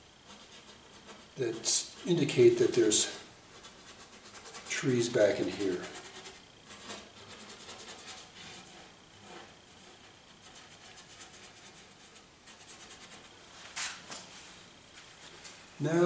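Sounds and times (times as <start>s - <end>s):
paintbrush scrubbing paint: 0.0s - 13.4s.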